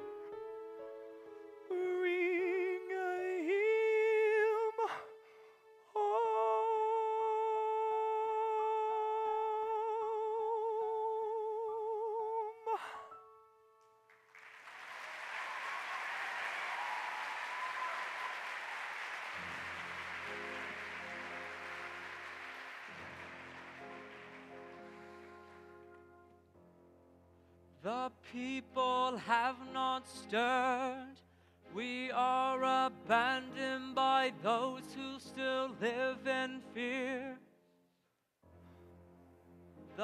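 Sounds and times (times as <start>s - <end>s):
soft orchestra: 0.0s - 12.3s, 19.4s - 27.1s, 27.8s - 37.4s, 38.5s - 40.0s
man singing with vibrato: 1.7s - 5.2s, 5.9s - 13.1s, 27.8s - 37.5s
audience applauding: 14.1s - 26.2s.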